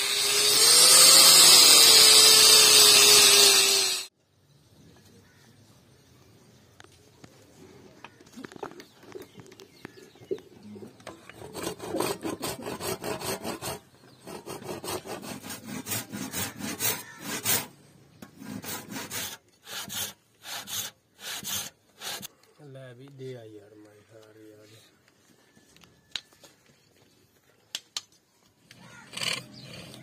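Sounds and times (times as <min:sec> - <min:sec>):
hand saw cutting wood: 0:00.0 - 0:04.1, 0:11.1 - 0:22.3, 0:28.8 - 0:30.0.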